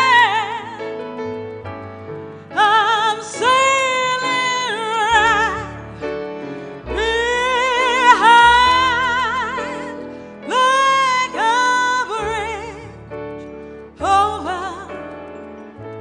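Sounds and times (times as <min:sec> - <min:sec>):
sustained accompaniment and bass: 0:00.0 - 0:16.0
person singing with vibrato: 0:06.8 - 0:13.0.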